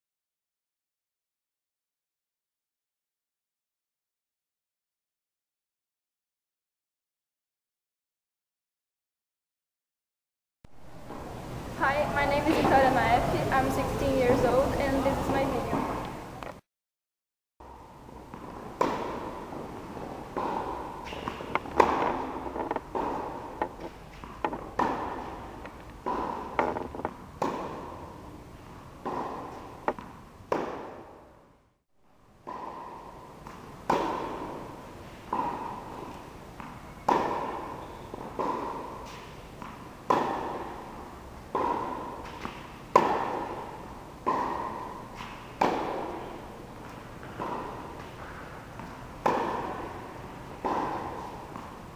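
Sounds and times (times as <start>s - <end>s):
tennis racket hitting ball: 17.7s - 31.4s, 32.4s - 51.9s.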